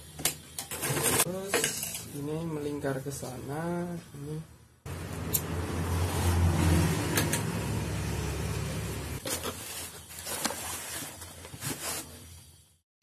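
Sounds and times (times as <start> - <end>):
low motor hum: 4.9 - 9.2
vinyl sheet rustling and crinkling: 9.2 - 12.2.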